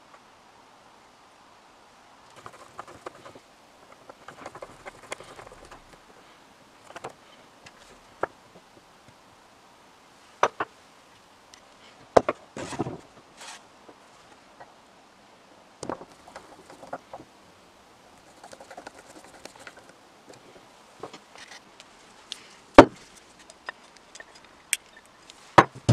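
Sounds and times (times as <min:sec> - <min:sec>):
metal parts clicking and tapping: 0:23.4 - 0:25.9.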